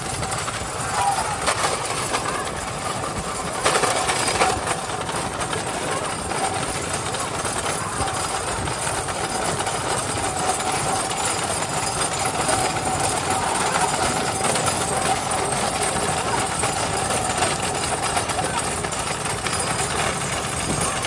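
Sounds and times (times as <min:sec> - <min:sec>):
wooden cart wheels on asphalt: 0:00.0 - 0:21.0.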